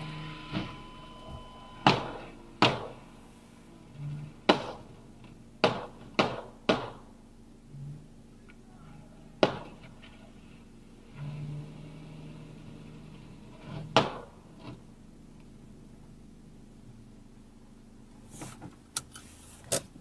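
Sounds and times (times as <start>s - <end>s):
sharp knocks inside a car: 0.5s - 3.0s, 4.5s - 4.9s, 5.6s - 7.1s, 9.4s - 9.9s, 13.9s - 14.8s.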